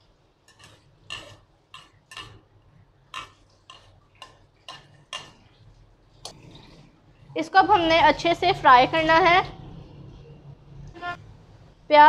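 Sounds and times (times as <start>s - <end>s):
metal spoon scraping ceramic bowl: 0.5s - 2.4s.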